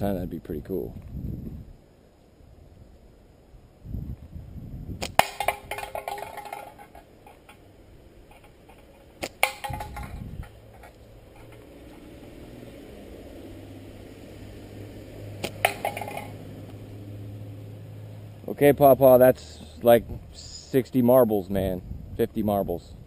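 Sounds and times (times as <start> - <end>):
slingshot shot crack: 5.0 - 6.7, 9.2 - 10.0, 15.4 - 16.8
can ringing clatter: 5.1 - 7.6, 8.3 - 11.6, 15.4 - 16.4.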